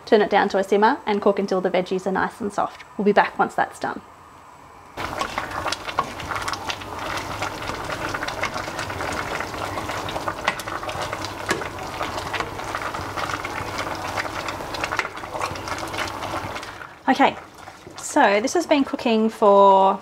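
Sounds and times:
spoon stirring soup: 0:05.0 - 0:18.0
soup bubbling in a saucepan: 0:05.0 - 0:19.1.

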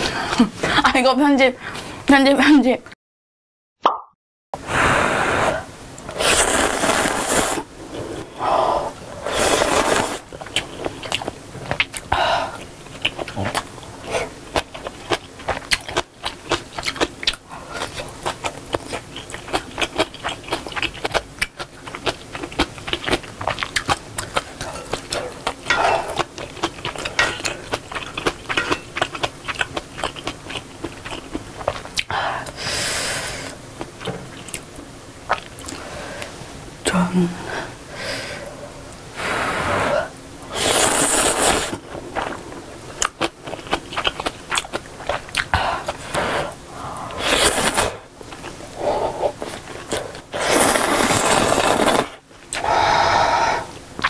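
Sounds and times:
slurping noodles: 0:04.6 - 0:10.3, 0:39.2 - 0:42.4, 0:45.8 - 0:48.1, 0:48.8 - 0:53.7
wet chewing: 0:09.4 - 0:32.6, 0:35.3 - 0:35.8, 0:40.6 - 0:46.4.

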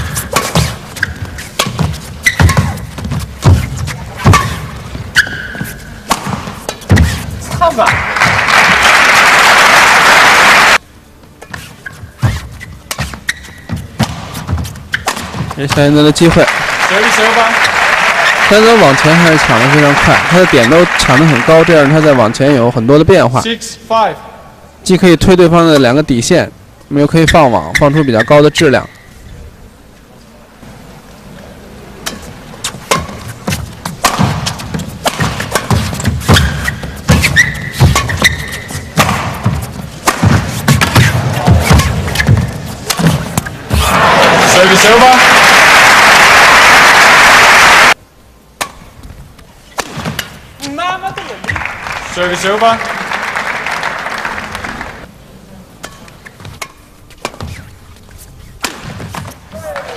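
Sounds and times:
racket striking shuttlecock: 0:00.0 - 0:07.2, 0:14.0 - 0:15.5, 0:32.0 - 0:43.5, 0:48.6 - 0:48.9, 0:49.7 - 0:50.4, 0:58.6 - 0:59.9
crowd applause: 0:07.9 - 0:10.8, 0:16.3 - 0:22.4, 0:43.8 - 0:48.0, 0:51.5 - 0:55.1
short high squeak: 0:36.4 - 0:38.8.

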